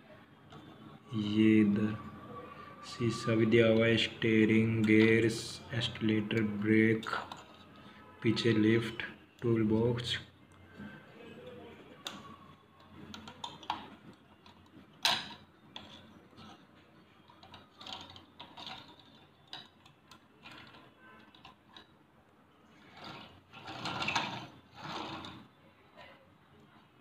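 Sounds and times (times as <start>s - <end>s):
toy tractor handling clicks and knocks: 6.2s - 8.7s, 12.0s - 16.7s, 17.3s - 22.0s.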